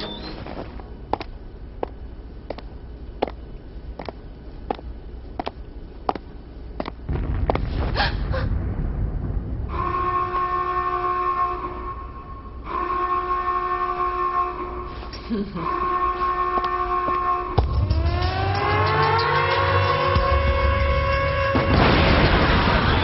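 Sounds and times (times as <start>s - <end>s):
low rumble: 0.6s - 12.7s
horn-like alarm: 9.7s - 22.0s.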